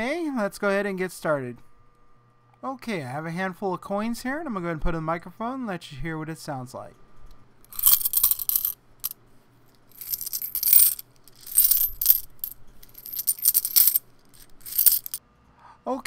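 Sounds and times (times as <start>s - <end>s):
coins jingling in hands: 7.7s - 8.8s, 10.0s - 15.2s.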